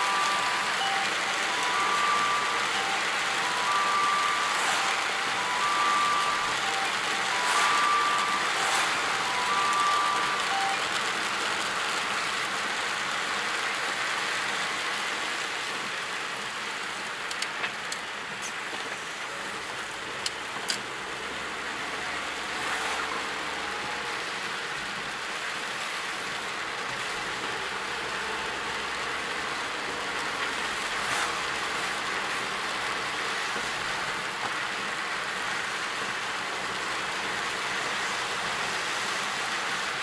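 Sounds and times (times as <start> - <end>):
short electronic beeps: 0.0 - 10.9
rain and wet tyres on road: 0.0 - 40.0.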